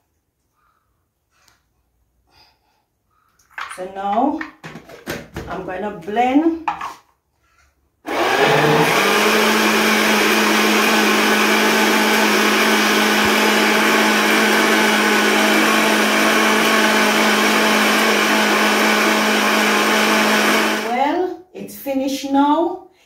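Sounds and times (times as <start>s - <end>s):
blender motor whirring: 8.1s - 21.1s.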